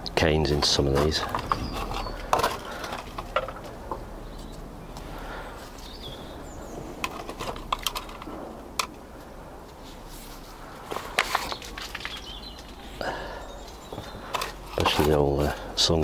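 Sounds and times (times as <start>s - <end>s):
plant pots clicking and knocking: 0.0s - 9.8s, 10.7s - 16.0s
bird chirping: 0.6s - 2.9s, 3.6s - 8.5s, 10.7s - 15.6s.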